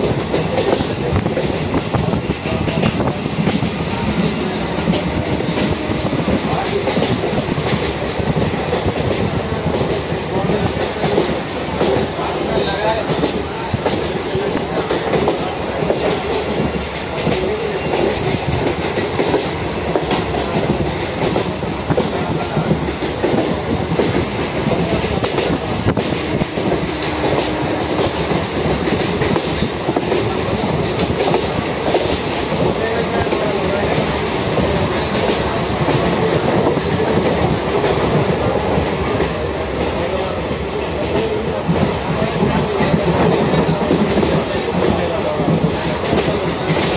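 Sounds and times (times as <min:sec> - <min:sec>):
train wheels rumbling on rails: 0:00.0 - 0:46.9.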